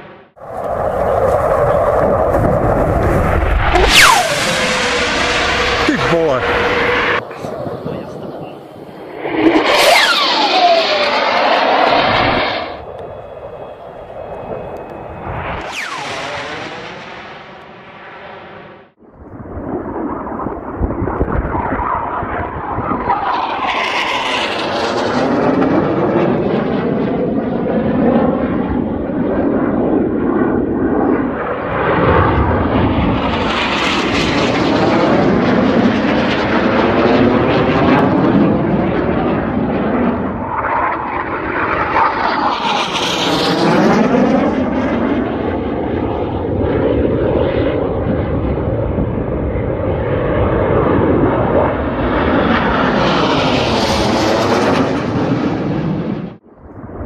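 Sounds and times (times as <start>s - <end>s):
jet engine flying past: 0.0s - 57.0s.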